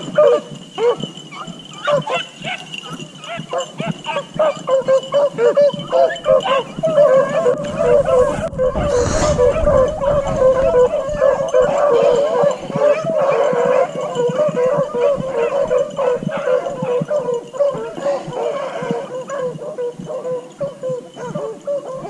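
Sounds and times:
dogs baying: 0:00.0 - 0:22.0.

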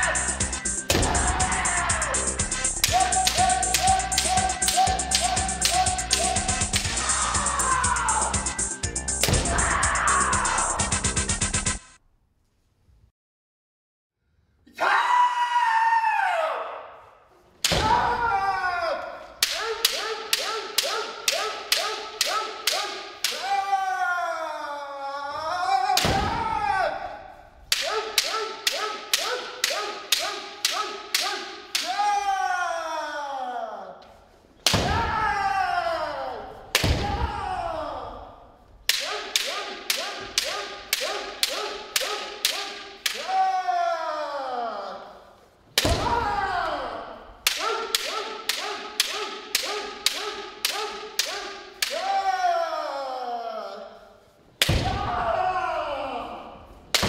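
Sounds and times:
person shouting: 0:00.0 - 0:08.5, 0:09.3 - 0:11.1, 0:17.8 - 0:34.0, 0:34.8 - 0:45.2, 0:45.9 - 0:54.2, 0:54.8 - 0:56.7
bamboo swords striking: 0:00.8 - 0:02.0, 0:02.8 - 0:07.9, 0:09.2 - 0:09.9, 0:17.6 - 0:18.5, 0:19.3 - 0:23.8, 0:25.8 - 0:32.2, 0:34.6 - 0:35.6, 0:36.6 - 0:37.9, 0:38.8 - 0:43.6, 0:45.7 - 0:52.5, 0:54.6 - 0:55.6.

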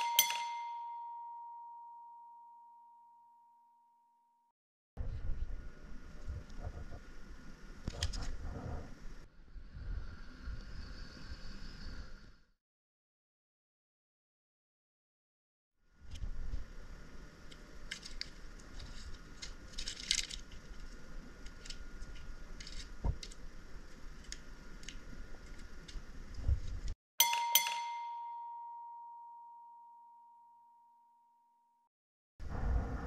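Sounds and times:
bright chime ringing: 0:00.0 - 0:04.0, 0:27.2 - 0:31.4
tape clicks and rustles: 0:17.5 - 0:26.9.

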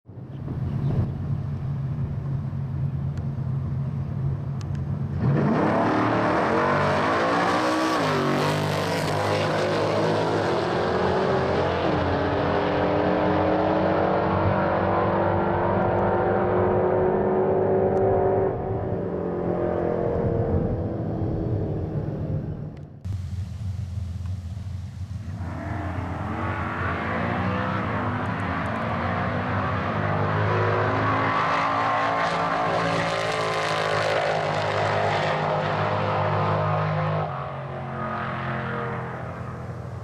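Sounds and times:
cars launching and accelerating: 0:04.0 - 0:40.0
drag cars idling: 0:23.1 - 0:26.5.

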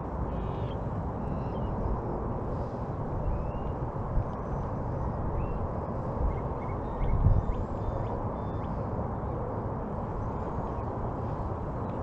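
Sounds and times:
faint bird chirps: 0:00.3 - 0:01.9, 0:03.2 - 0:05.6, 0:06.3 - 0:08.8.

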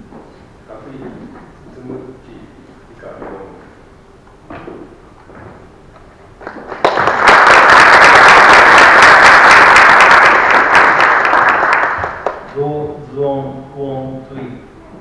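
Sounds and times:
crowd applauding: 0:06.4 - 0:12.5.

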